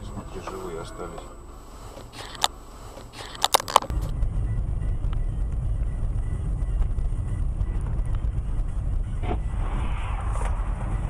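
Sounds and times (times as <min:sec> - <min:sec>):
car driving rumble: 0:00.0 - 0:11.0
sharp clicks: 0:02.0 - 0:03.9.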